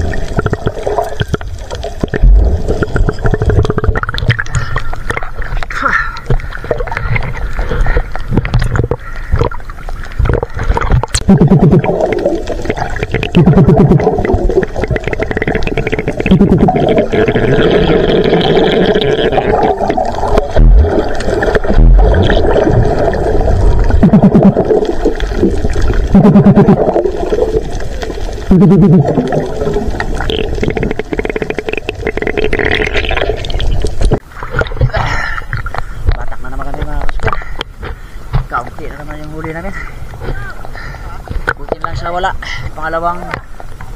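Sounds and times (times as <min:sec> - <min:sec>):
underwater water noise: 0:00.0 - 0:43.9.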